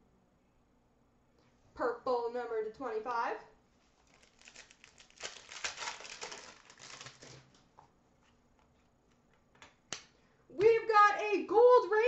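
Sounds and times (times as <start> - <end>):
foil wrapper crinkling and tearing: 4.0 - 7.6.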